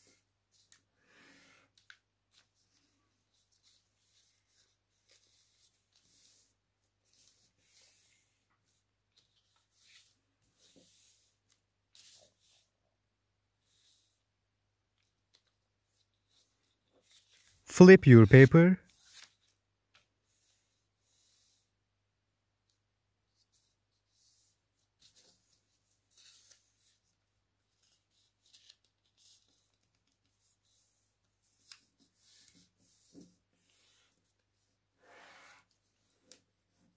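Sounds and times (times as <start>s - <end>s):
paper rustling and creasing: 1.7s - 12.7s, 15.0s - 17.6s, 23.4s - 34.7s.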